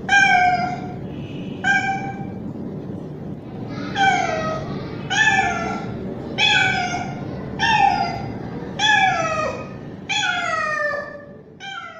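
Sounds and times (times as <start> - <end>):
cat meowing loudly: 3.9 - 11.9.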